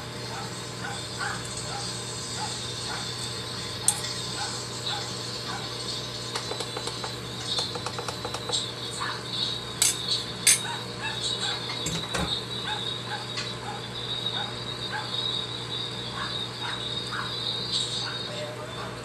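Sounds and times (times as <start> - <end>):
utensils clinking on cookware: 3.8 - 4.3, 9.8 - 10.8, 11.6 - 12.3.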